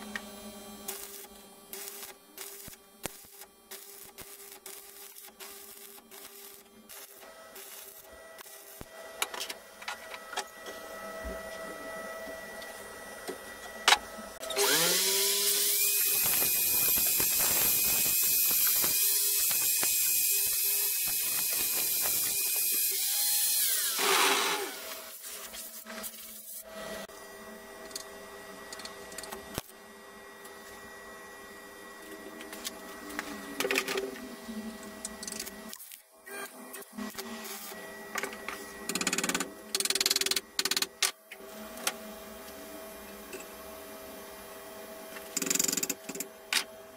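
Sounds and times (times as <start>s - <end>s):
angle grinder grinding metal: 14.4s - 27.1s.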